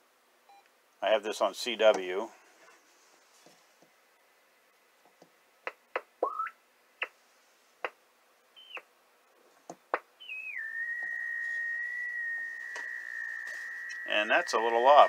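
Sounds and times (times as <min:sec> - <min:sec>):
radio chirps and whistles: 0:06.2 - 0:06.6, 0:08.6 - 0:08.9, 0:10.2 - 0:15.0
whistle settling into steady tone: 0:08.6 - 0:08.8, 0:10.2 - 0:15.0.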